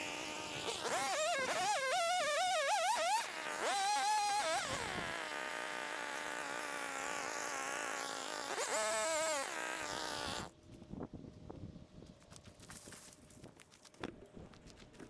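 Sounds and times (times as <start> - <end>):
two-stroke trimmer engine revving: 0.0 - 10.5.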